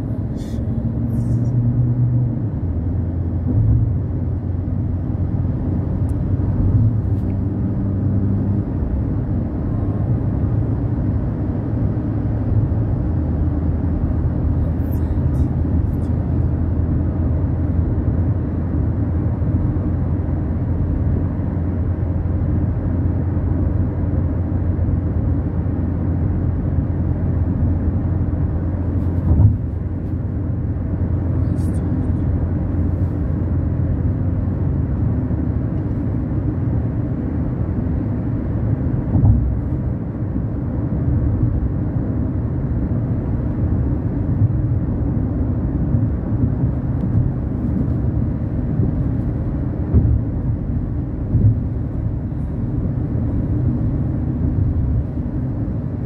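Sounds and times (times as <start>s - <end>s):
steady low rumble: 0.0s - 56.0s
short thump: 29.2s - 29.8s, 39.1s - 39.6s, 49.9s - 50.2s.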